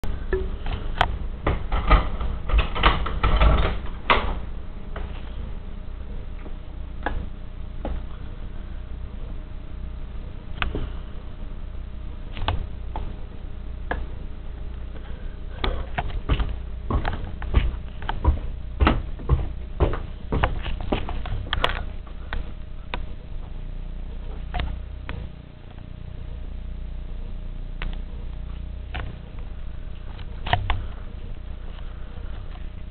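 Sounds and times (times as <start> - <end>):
steady low hum: 0.0 - 32.9
rustling and knocks: 15.6 - 23.2.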